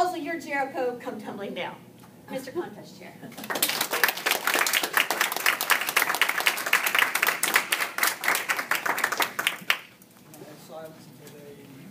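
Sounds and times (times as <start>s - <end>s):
audience clapping: 3.4s - 10.0s.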